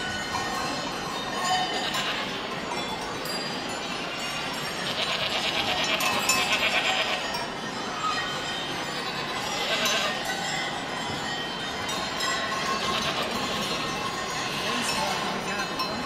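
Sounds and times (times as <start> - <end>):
goats bleating: 4.7 - 7.4, 8.9 - 10.2, 12.7 - 13.8.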